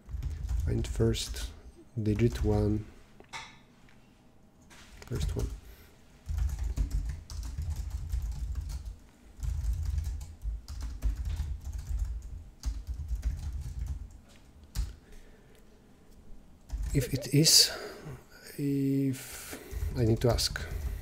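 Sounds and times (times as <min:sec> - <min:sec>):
typing on a computer keyboard: 0:00.1 - 0:01.5, 0:02.1 - 0:02.6, 0:06.2 - 0:15.0, 0:16.7 - 0:17.0.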